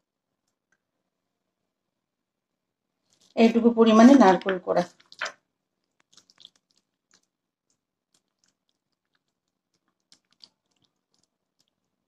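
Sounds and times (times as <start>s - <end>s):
hand squishing wet batter: 3.0s - 12.0s.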